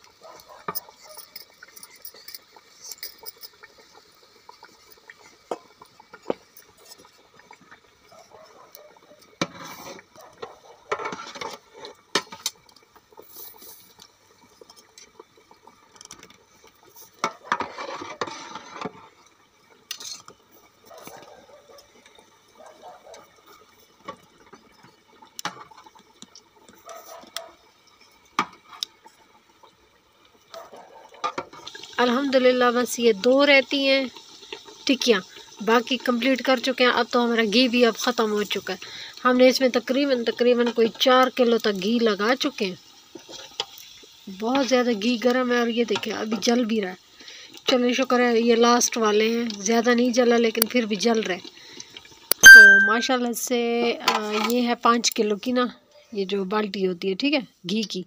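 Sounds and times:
sharp clinks and taps: 0:52.4 - 0:53.1.

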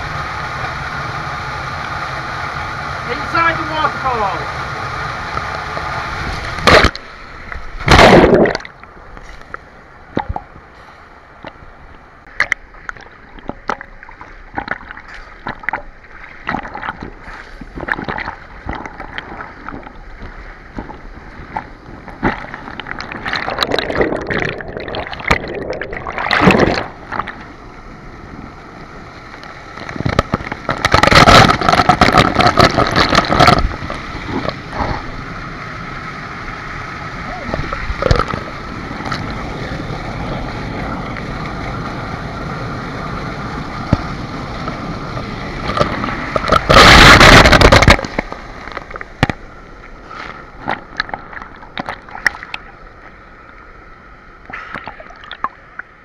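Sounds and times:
loud rushes of water: 0:00.0 - 0:52.9
waterfall splashing onto camera: 0:01.8 - 0:11.6, 0:29.4 - 0:52.6.

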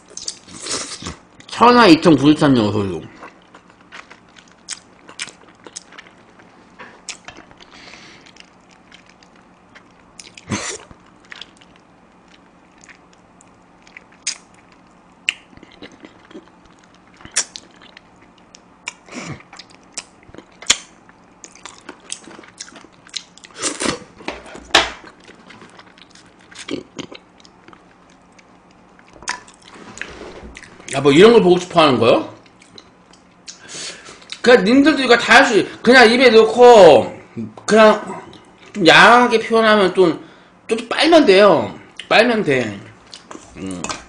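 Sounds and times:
person chewing with wet clicks: 0:00.0 - 0:01.5, 0:03.2 - 0:24.0, 0:25.0 - 0:29.7, 0:32.4 - 0:33.6, 0:34.2 - 0:34.4, 0:41.9 - 0:42.1, 0:43.0 - 0:44.0.

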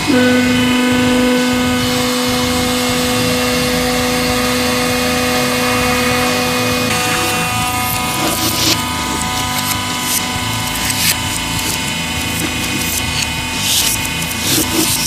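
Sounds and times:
hydraulic pump motor hum: 0:00.0 - 0:15.0
noisy rush: 0:00.0 - 0:15.0.

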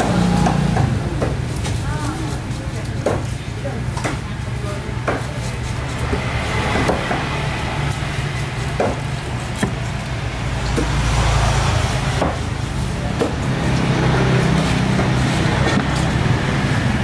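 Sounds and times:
knife chopping on wooden block: 0:05.0 - 0:08.0, 0:08.7 - 0:11.2, 0:11.8 - 0:13.6.

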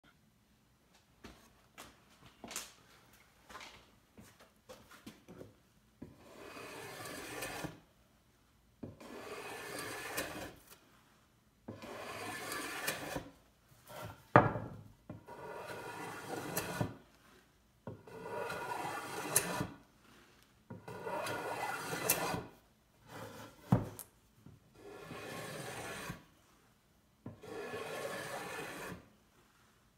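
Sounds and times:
block plane strokes on wood: 0:06.0 - 0:07.8, 0:08.8 - 0:10.6, 0:11.7 - 0:13.3, 0:15.1 - 0:17.3, 0:17.9 - 0:19.8, 0:20.7 - 0:22.5, 0:24.8 - 0:26.2, 0:27.3 - 0:29.1.

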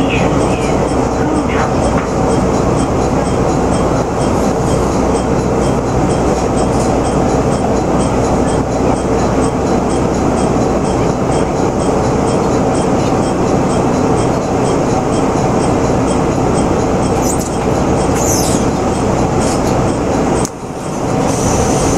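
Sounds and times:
faint regular ticking: 0:00.0 - 0:18.2
train engine and wheel rumble: 0:00.0 - 0:21.9
high brake squeals: 0:17.1 - 0:18.8.

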